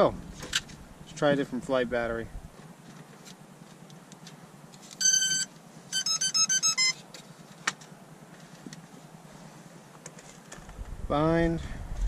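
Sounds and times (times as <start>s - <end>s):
electronic beeps: 5.0s - 7.0s
short stepped beep tune: 5.0s - 7.0s.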